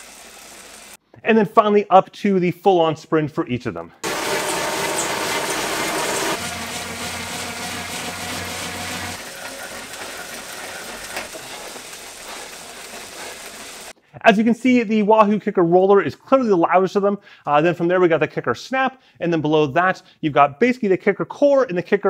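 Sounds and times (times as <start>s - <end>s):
bike trainer whirring: 4.0s - 13.9s.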